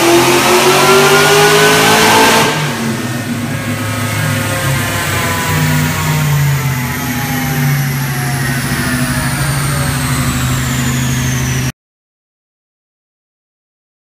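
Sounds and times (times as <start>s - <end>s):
low engine note: 0.0s - 11.7s
supercharger whine falling in pitch: 0.0s - 11.7s.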